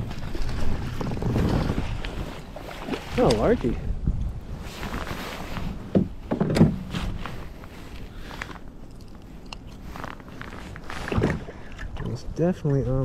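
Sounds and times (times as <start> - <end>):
rain jacket rustling: 4.6 - 5.9, 6.8 - 8.6, 9.3 - 11.2.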